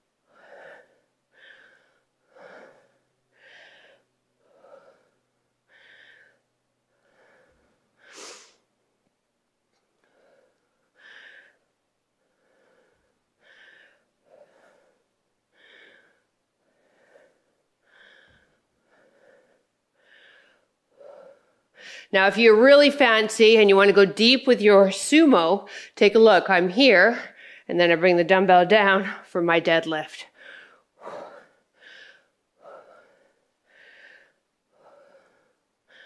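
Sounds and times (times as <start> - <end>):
woman breathing hard: 0.2 - 8.7, 10.0 - 22.1, 27.3 - 27.7, 30.3 - 36.0.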